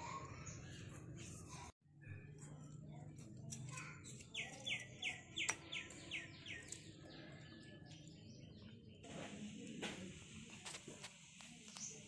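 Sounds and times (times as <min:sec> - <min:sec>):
bird singing: 0:04.1 - 0:09.0.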